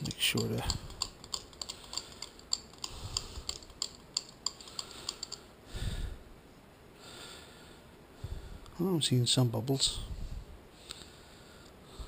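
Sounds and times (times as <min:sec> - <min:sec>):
screwdriver clicking and scraping metal: 0:00.0 - 0:05.5.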